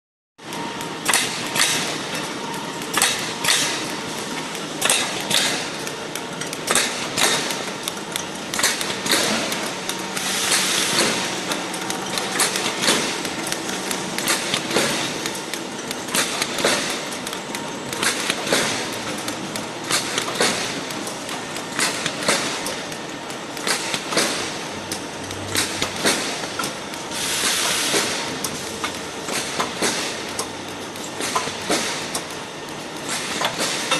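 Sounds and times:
packing machine clatter: 0:00.4 - 0:33.9
sharp clacks and knocks: 0:01.0 - 0:23.0
hiss bursts: 0:27.1 - 0:28.2.

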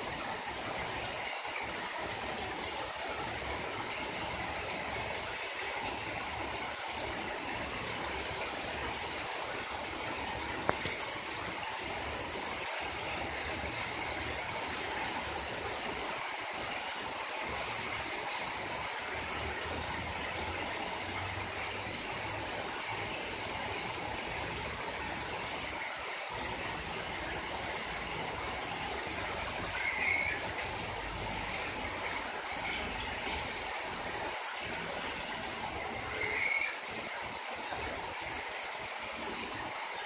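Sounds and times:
heavy rain on paving: 0:00.0 - 0:40.0.

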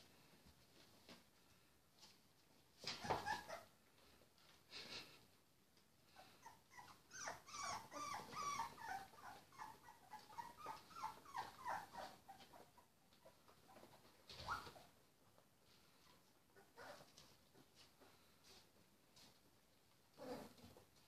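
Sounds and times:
puppies whimpering: 0:03.0 - 0:03.7, 0:06.2 - 0:14.9.

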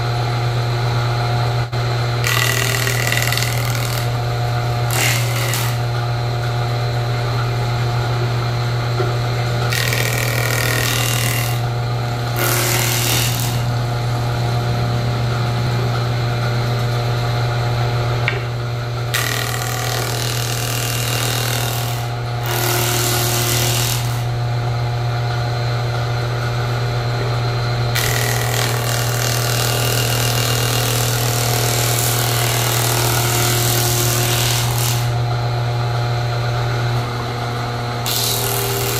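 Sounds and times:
jointer-planer humming: 0:00.0 - 0:38.9
planer cutting wood: 0:01.6 - 0:16.0, 0:18.2 - 0:24.4, 0:27.1 - 0:35.3, 0:38.0 - 0:38.9.

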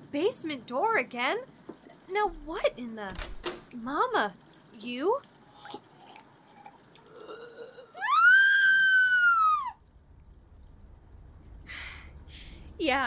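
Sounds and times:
woman screaming: 0:08.0 - 0:09.8.

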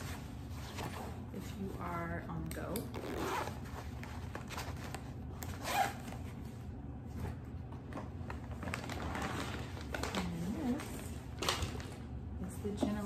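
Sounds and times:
zipper on fabric bag opening: 0:02.9 - 0:03.8, 0:05.5 - 0:06.1.

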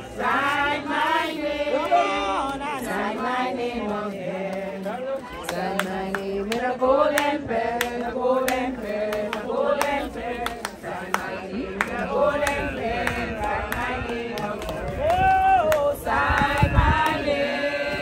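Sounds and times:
group singing slow chant: 0:00.0 - 0:18.0.

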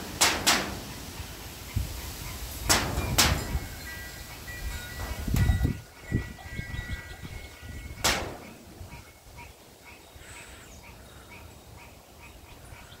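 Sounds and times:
wind buffeting microphone: 0:01.6 - 0:09.5
bird chirping: 0:03.8 - 0:13.0.

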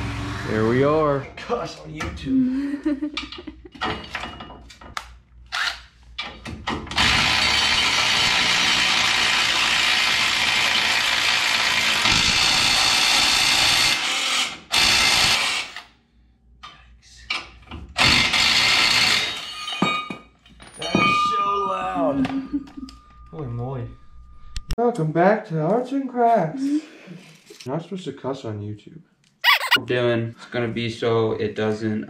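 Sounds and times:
power tool turning bolts: 0:06.9 - 0:15.9, 0:18.0 - 0:19.5.

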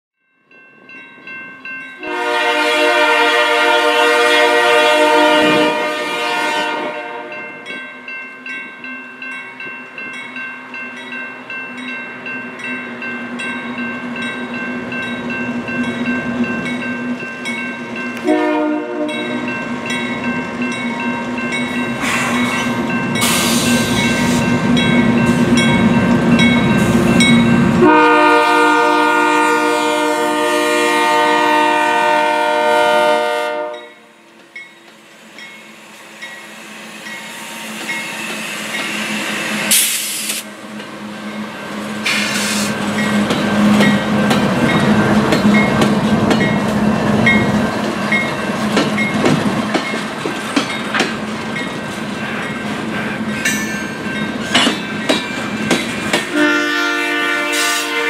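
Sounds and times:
crossing bell ringing: 0:00.2 - 0:39.7, 0:42.9 - 0:57.4
locomotive engine and wheels: 0:00.3 - 0:30.2, 0:31.0 - 0:57.6
locomotive horn blasts: 0:02.0 - 0:07.4, 0:18.2 - 0:19.4, 0:27.8 - 0:34.1, 0:56.3 - 0:58.0.

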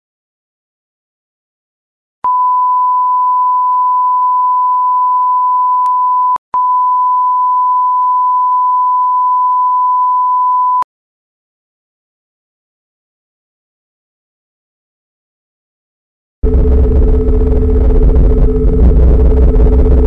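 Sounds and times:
loud test-tone beep: 0:02.3 - 0:10.8.

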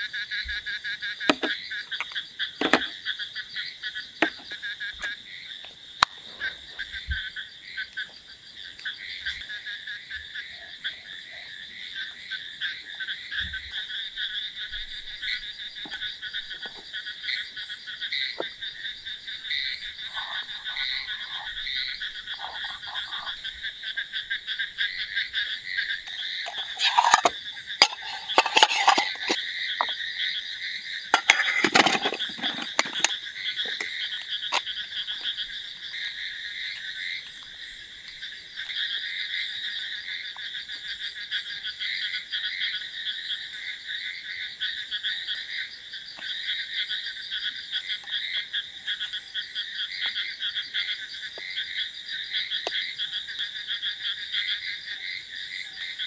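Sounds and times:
frogs croaking: 0:00.0 - 0:56.0
close scraping and knocking: 0:01.3 - 0:01.6, 0:02.6 - 0:03.0, 0:04.2 - 0:04.6, 0:22.3 - 0:23.4, 0:26.1 - 0:29.9, 0:31.2 - 0:34.6.

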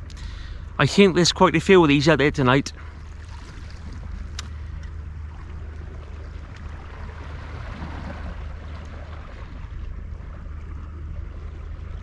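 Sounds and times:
sea water washing: 0:00.0 - 0:12.0
wind rumble on microphone: 0:02.7 - 0:12.0.

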